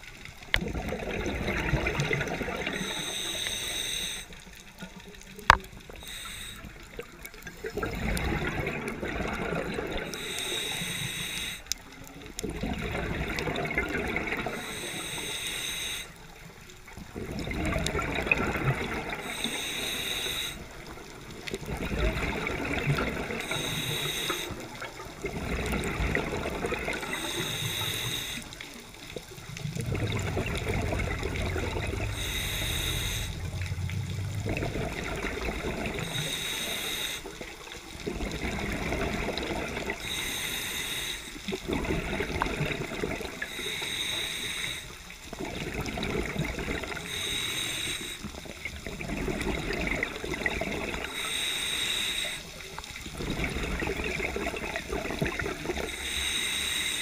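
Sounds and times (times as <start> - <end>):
exhaled bubbles rushing underwater: 0.0 - 11.1, 11.8 - 15.3, 16.0 - 57.0
regulator inhalation hiss: 2.6 - 4.4, 5.9 - 7.0, 10.2 - 11.7, 14.5 - 16.3, 19.1 - 20.8, 23.4 - 24.7, 27.0 - 28.7, 30.2 - 34.6, 35.8 - 37.4, 40.0 - 41.5, 43.4 - 45.1, 47.0 - 48.4, 51.0 - 52.8, 55.9 - 57.0.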